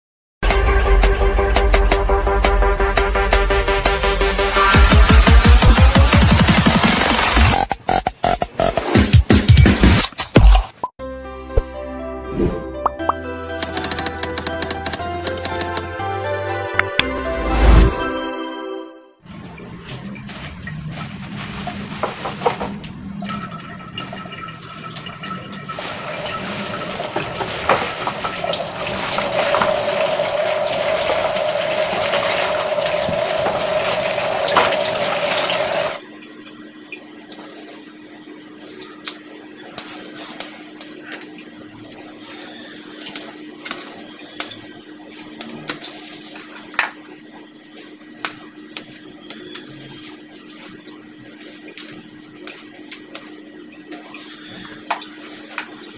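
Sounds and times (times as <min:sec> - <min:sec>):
hands rustling leaves: 0:20.2 - 0:22.6, 0:48.2 - 0:55.9.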